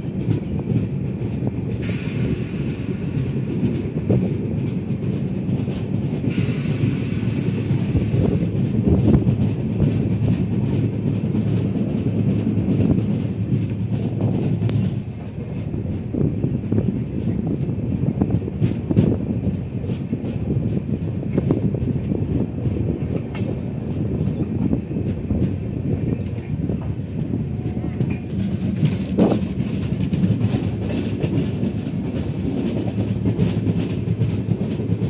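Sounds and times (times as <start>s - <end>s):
train wheels rumbling on rails: 0.0s - 35.0s
clicks over rail joints: 18.3s - 35.0s.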